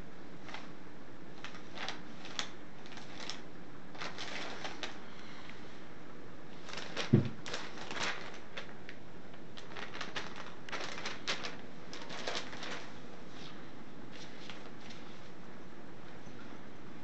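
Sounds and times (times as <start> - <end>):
paper flyers crinkling: 0.4 - 5.4, 6.5 - 15.4
dull thump: 7.1 - 7.4.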